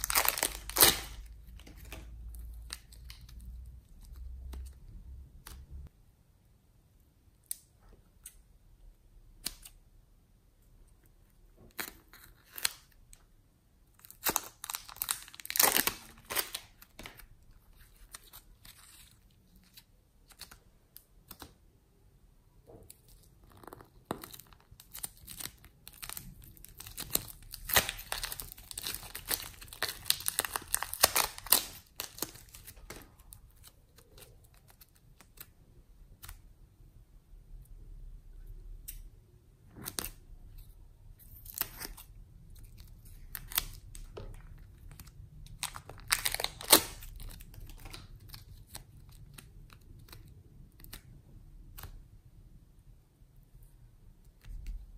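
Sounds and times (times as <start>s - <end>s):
plastic bags crinkling: 0.0s - 2.1s, 25.3s - 33.2s.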